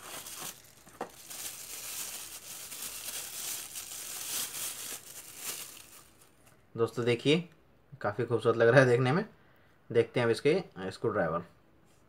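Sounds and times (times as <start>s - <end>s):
plastic wrapping crinkling: 0.0s - 6.5s.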